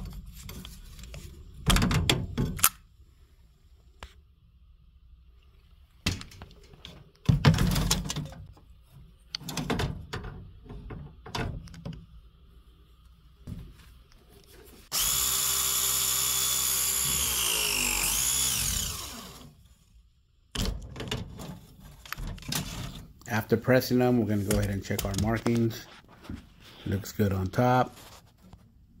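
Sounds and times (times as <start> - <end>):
press tool motor running: 14.9 - 19.6.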